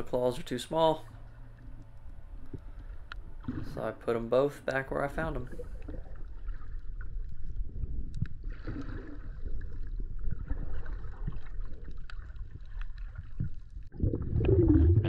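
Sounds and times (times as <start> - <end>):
muffled underwater rumble: 0.0 - 15.0
sharp clicks and crackles: 8.0 - 8.5.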